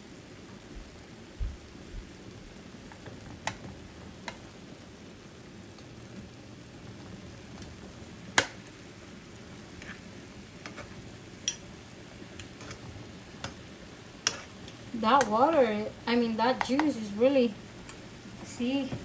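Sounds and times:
sausages sizzling in a pan: 0:00.0 - 0:19.0
metal utensils clicking on pan: 0:11.4 - 0:11.7.

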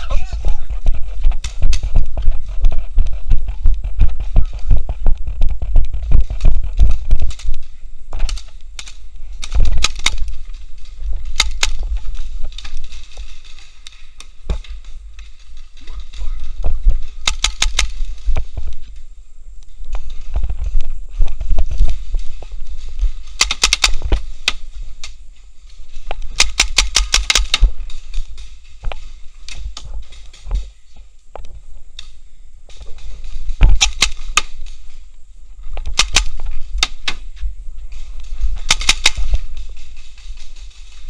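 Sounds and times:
low microphone rumble: 0:00.0 - 0:23.4
paintball markers firing: 0:08.2 - 0:10.4, 0:11.2 - 0:12.0, 0:17.1 - 0:18.2, 0:23.3 - 0:24.6, 0:26.2 - 0:27.8, 0:33.6 - 0:34.7, 0:35.8 - 0:37.2, 0:38.6 - 0:39.4.

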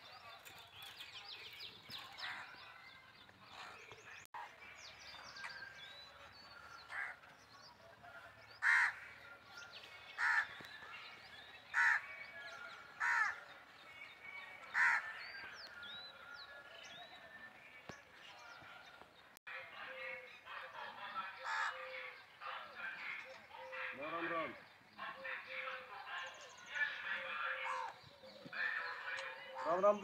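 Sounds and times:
crow cawing: 0:06.9 - 0:07.2, 0:08.6 - 0:09.1, 0:10.2 - 0:10.6, 0:11.7 - 0:12.2, 0:13.0 - 0:13.4, 0:14.7 - 0:15.1, 0:21.4 - 0:21.9.

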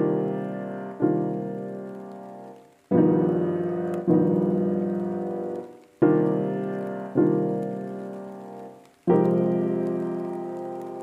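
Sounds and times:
piano chords: 0:00.0 - 0:11.0.

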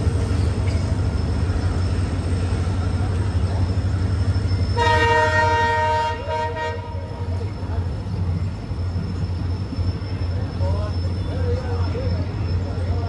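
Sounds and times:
low rumble of trains: 0:00.0 - 0:13.0
train horn: 0:04.8 - 0:07.3.

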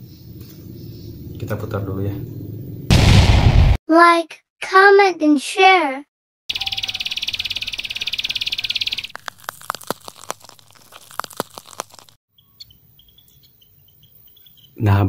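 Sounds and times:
faint high peeps: 0:06.5 - 0:09.2
electric buzzing and crackling: 0:09.0 - 0:12.2.

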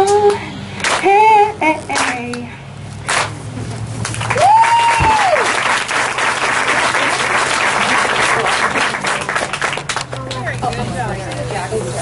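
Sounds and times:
audience clapping: 0:00.8 - 0:01.1, 0:03.1 - 0:03.4, 0:04.0 - 0:10.5
high whoop: 0:04.3 - 0:05.6.

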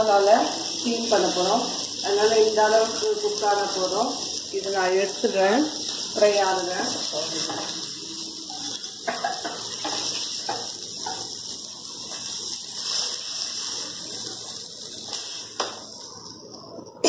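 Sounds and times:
fish sizzling in oil: 0:00.0 - 0:17.0
spatula scraping and tapping pan: 0:07.3 - 0:07.8, 0:08.5 - 0:11.4.

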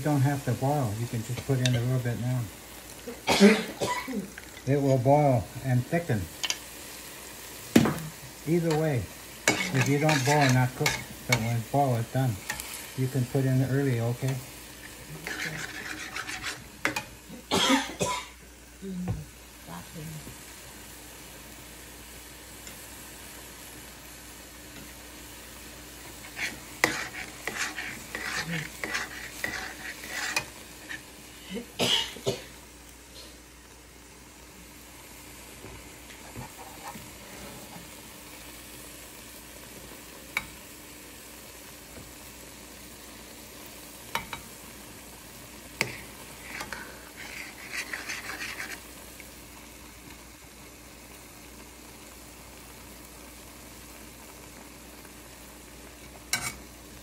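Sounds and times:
vegetables sizzling in a wok: 0:00.0 - 0:57.0
metal spatula scraping a wok: 0:01.3 - 0:02.0, 0:08.6 - 0:11.8, 0:14.2 - 0:17.1, 0:26.1 - 0:31.2, 0:36.2 - 0:37.8, 0:45.8 - 0:49.0, 0:56.3 - 0:56.6.

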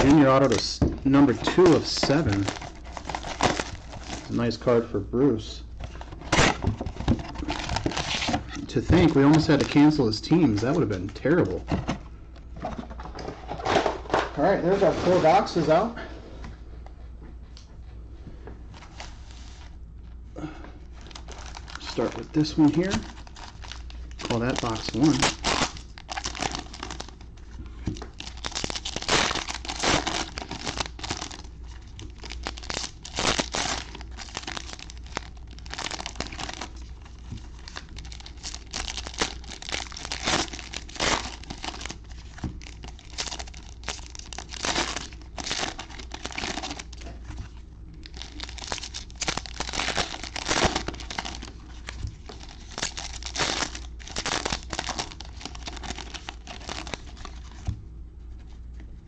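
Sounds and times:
wrappers tearing: 0:00.0 - 0:04.4, 0:07.2 - 0:11.6, 0:21.0 - 0:27.3, 0:28.1 - 0:47.0, 0:48.0 - 0:57.6
wrappers crinkling: 0:00.0 - 0:04.6, 0:05.9 - 0:11.7, 0:20.8 - 0:57.7.

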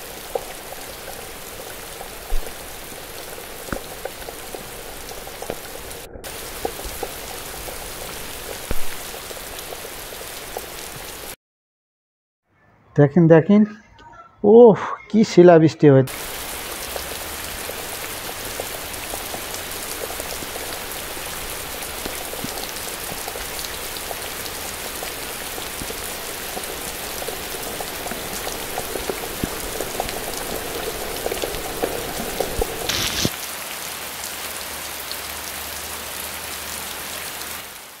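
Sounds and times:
hailstones ticking on ground: 0:00.0 - 0:11.3, 0:16.1 - 0:33.4
heavy rain hiss: 0:00.0 - 0:11.4, 0:16.1 - 0:38.0.

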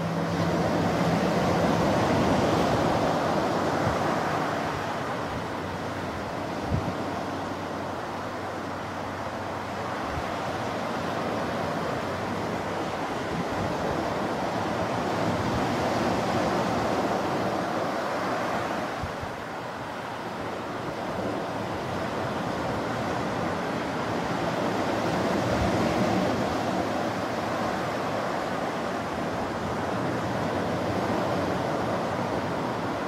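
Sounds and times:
wind buffeting microphone: 0:00.0 - 0:09.0
ocean surf breaking on sand: 0:00.0 - 0:33.0.

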